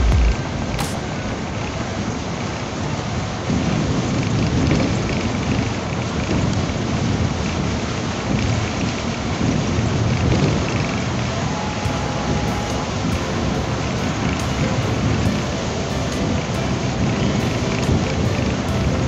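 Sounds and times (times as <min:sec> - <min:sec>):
bus rumble inside cabin: 0:09.8 - 0:19.0.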